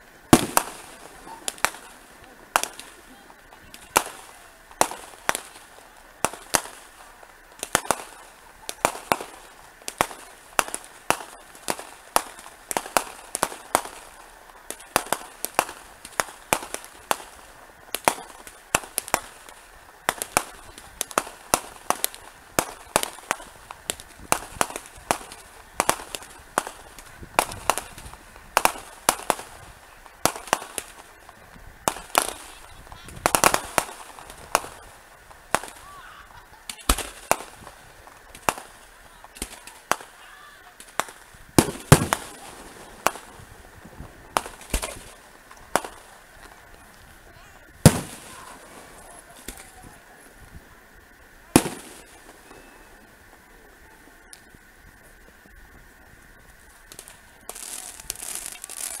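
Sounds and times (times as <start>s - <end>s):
fireworks bursting: 0.0s - 59.0s.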